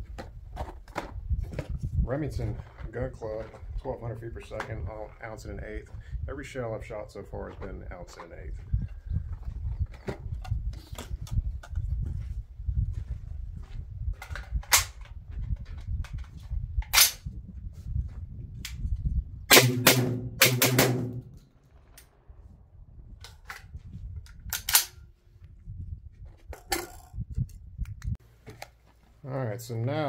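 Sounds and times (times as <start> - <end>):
shotgun shots: 19.5 - 22.2.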